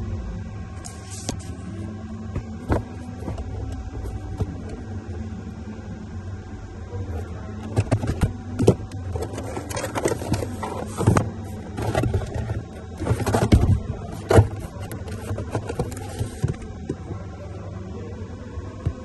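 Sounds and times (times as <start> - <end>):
steady low hum: 0.0 - 19.0
cardboard box knocks and scrapes: 7.8 - 16.7.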